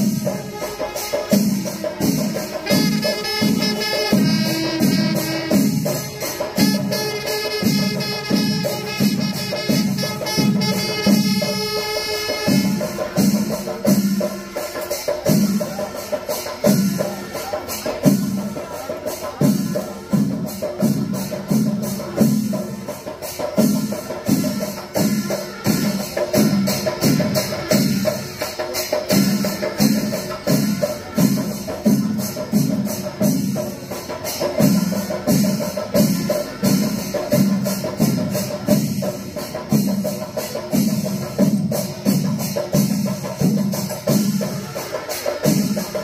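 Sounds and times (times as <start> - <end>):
drums beaten in fast rhythm: 0.0 - 46.0
metallic percussion strikes: 0.0 - 46.0.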